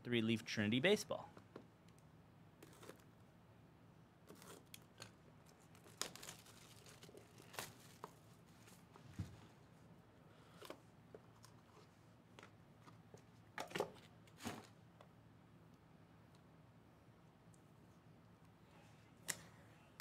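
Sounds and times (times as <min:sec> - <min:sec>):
shrink wrap tearing and crinkling: 0:04.3 - 0:08.2.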